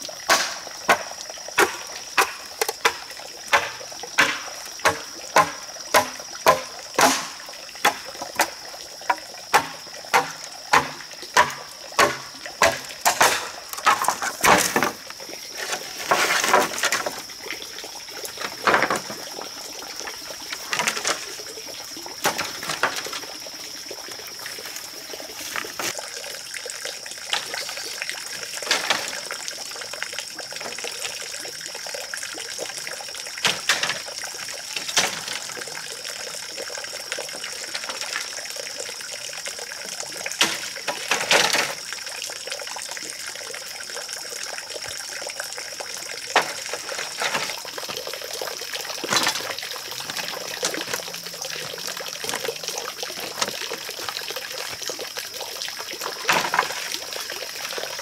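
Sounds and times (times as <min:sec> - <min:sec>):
bamboo poles knocking and clattering: 0:00.2 - 0:17.3, 0:18.3 - 0:19.6, 0:20.2 - 0:21.5, 0:22.2 - 0:23.5, 0:27.3 - 0:29.5, 0:33.4 - 0:35.9, 0:37.5 - 0:38.4, 0:40.3 - 0:41.9, 0:46.2 - 0:55.0, 0:56.0 - 0:58.0
machete chopping bamboo: 0:00.3 - 0:15.0.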